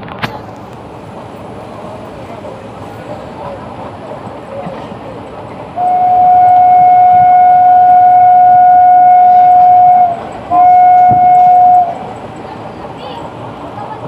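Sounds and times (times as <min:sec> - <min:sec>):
locomotive horn blasts: 0:05.8 - 0:12.0.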